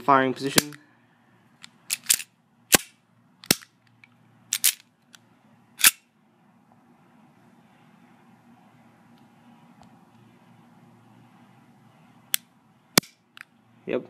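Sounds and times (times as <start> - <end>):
pistol mechanical clicks: 1.6 - 5.2.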